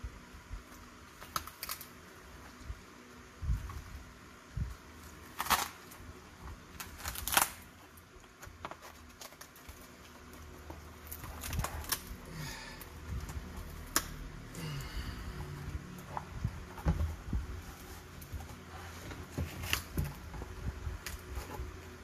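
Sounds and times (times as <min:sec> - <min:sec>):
peel ply crackling and rustling: 0:00.1 - 0:22.0
tearing rasps: 0:06.7 - 0:07.8.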